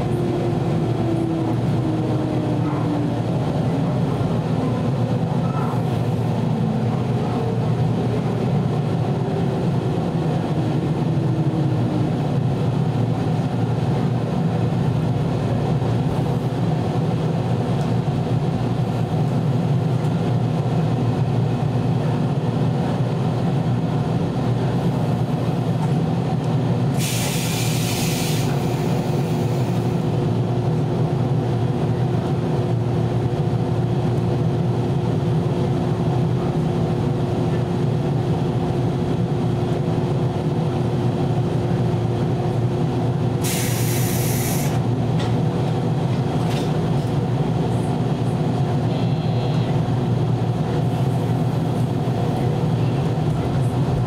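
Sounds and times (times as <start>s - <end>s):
train running rumble: 0.0s - 54.0s
sharp hiss of air: 27.0s - 29.7s, 43.4s - 44.8s.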